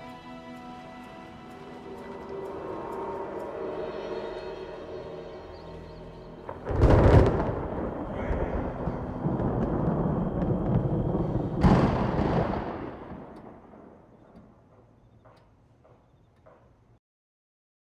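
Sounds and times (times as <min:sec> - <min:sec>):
deep rumble: 0:01.7 - 0:14.6
heavy booms: 0:06.5 - 0:14.1.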